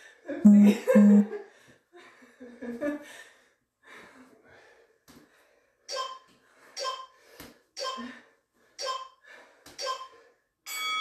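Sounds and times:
workout timer beeping: 5.9s - 7.2s, 7.8s - 9.2s, 9.8s - 11.0s.

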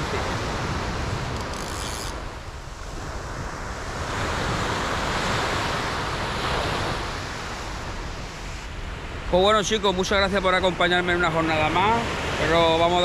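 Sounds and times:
wind buffeting microphone: 0.0s - 10.0s
surf washing onto beach: 0.0s - 13.0s.

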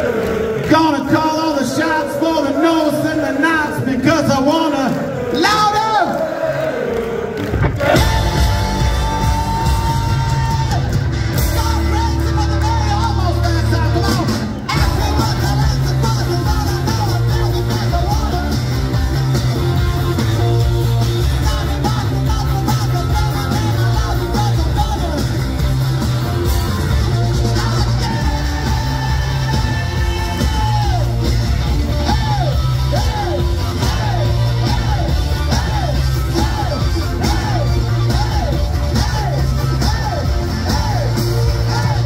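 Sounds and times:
rock band playing live: 7.5s - 42.0s
person singing and yelling: 7.8s - 25.7s, 26.3s - 42.0s.

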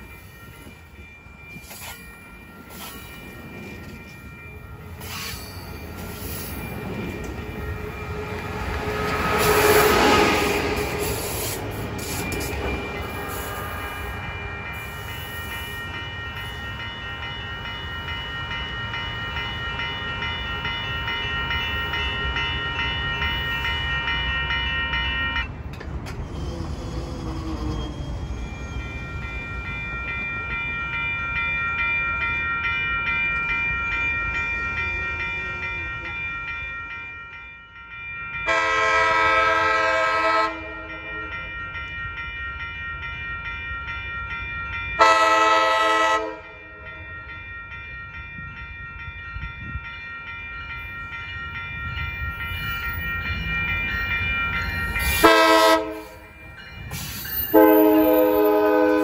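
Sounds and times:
train wheels rushing on rail: 0.0s - 30.7s, 50.7s - 59.0s
five-chime train horn: 7.6s - 11.5s, 38.4s - 41.5s, 45.0s - 46.9s, 55.0s - 56.4s, 57.4s - 59.0s
train horn blasts: 9.0s - 11.0s, 38.5s - 41.1s, 45.0s - 46.6s, 55.2s - 56.2s, 57.5s - 59.0s.

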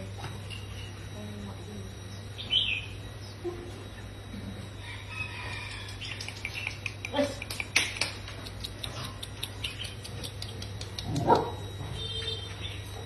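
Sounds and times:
puppy claws clicking on tiles: 5.7s - 11.4s.

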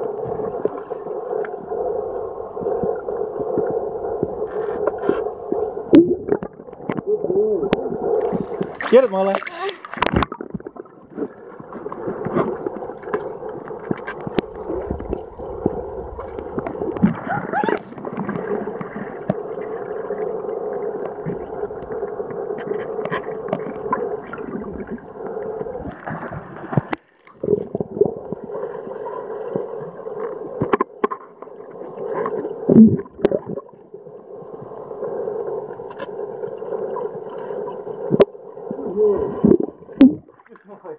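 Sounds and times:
underwater gurgling water: 0.0s - 40.9s
clicks and knocks underwater: 0.2s - 19.8s, 21.0s - 28.5s, 29.5s - 31.5s, 32.1s - 33.8s, 38.1s - 38.4s, 39.2s - 40.8s.

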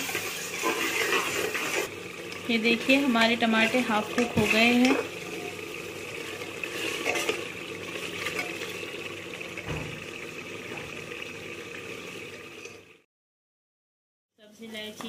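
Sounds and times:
metal ladle scraping a pot: 0.0s - 1.9s, 3.5s - 8.9s
food sizzling in a pot: 0.0s - 13.0s.

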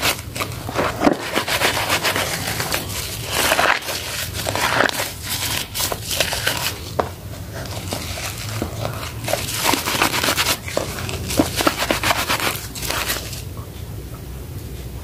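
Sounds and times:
soap lather squelching and popping: 7.7s - 13.4s.

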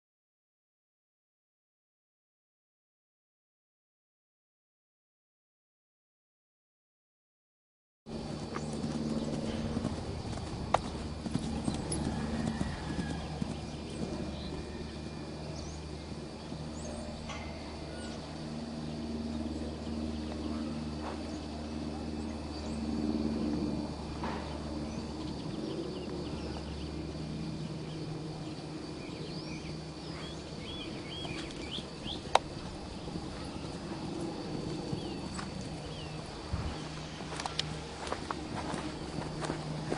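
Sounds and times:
hoofbeats on sand: 8.1s - 18.2s, 30.0s - 39.9s
low outdoor hum: 8.1s - 39.9s
small birds chirping: 8.2s - 39.9s.

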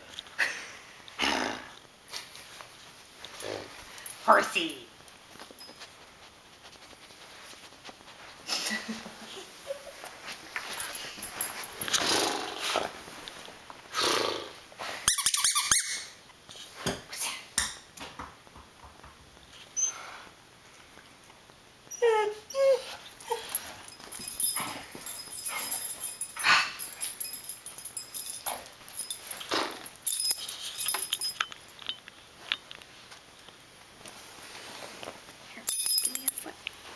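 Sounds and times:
rustling: 5.0s - 13.9s, 22.8s - 36.9s
dog collar tags jingling: 10.6s - 12.0s, 23.2s - 32.2s, 35.6s - 36.7s
squeaky dog toy squeaking: 15.1s - 16.2s.

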